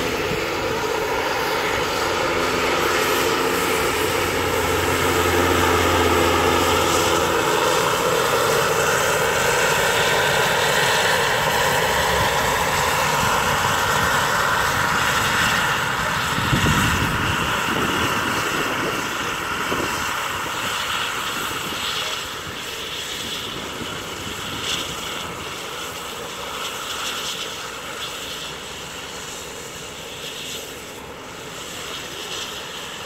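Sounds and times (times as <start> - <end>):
model helicopter rotor whine: 0.0 - 33.0.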